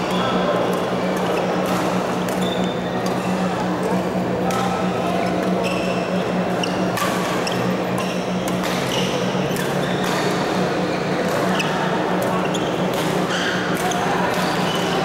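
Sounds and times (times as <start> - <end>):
steady low hum: 0.0 - 15.0
racquet hitting shuttlecock: 1.2 - 3.4, 6.5 - 10.6, 11.2 - 15.0
shoes squeaking on court floor: 5.2 - 10.4, 11.4 - 15.0.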